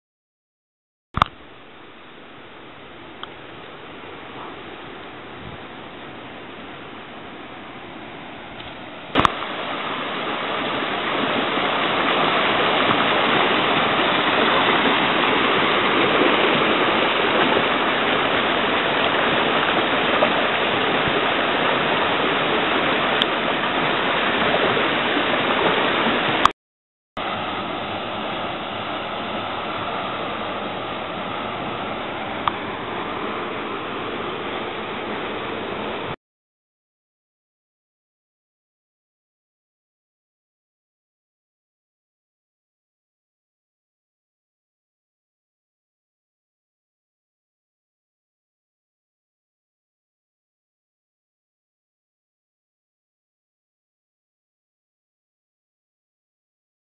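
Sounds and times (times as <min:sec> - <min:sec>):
water rushing over rocks: 0:03.1 - 0:26.5, 0:27.2 - 0:36.2.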